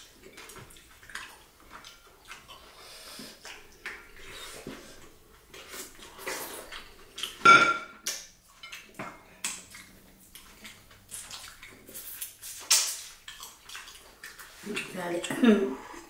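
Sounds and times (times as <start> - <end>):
ceramic bowl clink: 7.4 - 8.0
lip-smacking and finger-licking: 8.0 - 14.6.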